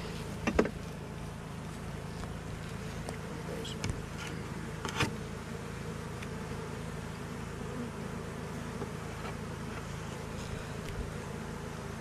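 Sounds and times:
bees buzzing: 0.0 - 12.0.

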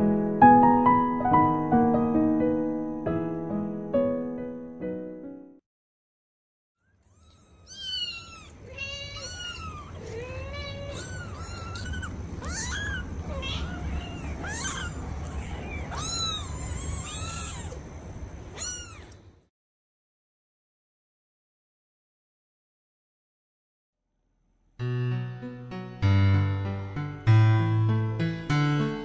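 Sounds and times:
kittens mewing: 6.8 - 17.9, 18.5 - 19.3.

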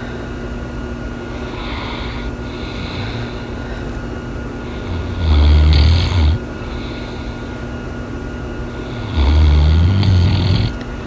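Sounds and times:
dog breathing: 1.2 - 4.0, 4.6 - 7.7, 8.7 - 10.8
dog snoring: 1.3 - 3.5, 4.6 - 7.4, 8.8 - 10.8.

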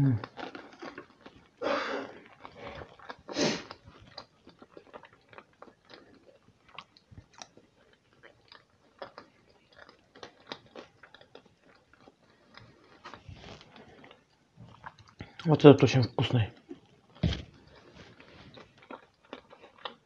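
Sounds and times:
person chewing: 0.0 - 15.6, 16.5 - 20.0.

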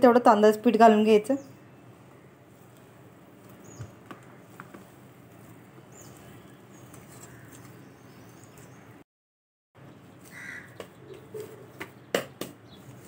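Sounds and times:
hands kneading dough: 1.9 - 8.8.

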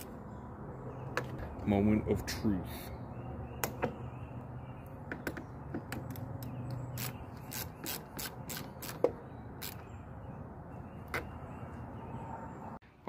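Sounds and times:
ratchet wrench clicking: 6.9 - 9.0, 9.6 - 9.8.

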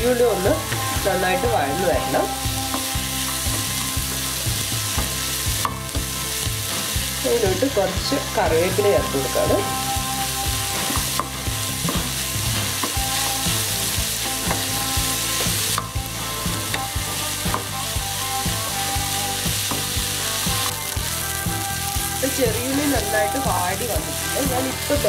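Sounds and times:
onions sizzling in hot oil: 0.0 - 25.0
utensil knocking and scraping pan: 10.6 - 13.6, 14.2 - 17.9, 19.6 - 20.7.

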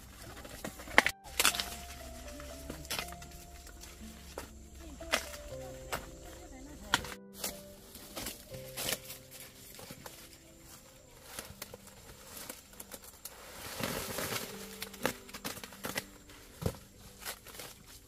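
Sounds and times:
dry corn leaves rustling: 0.0 - 18.0
snaps and clicks: 0.7 - 3.8.

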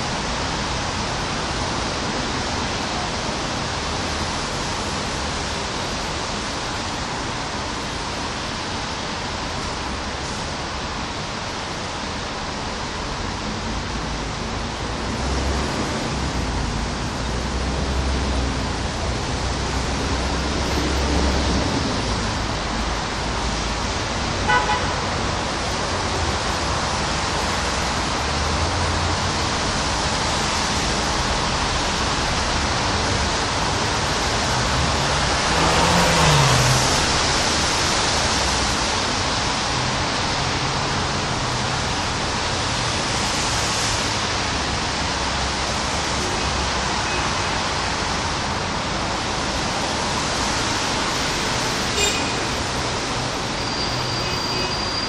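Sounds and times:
steady rain: 0.0 - 55.0
vehicle passing on wet road: 12.4 - 53.6.

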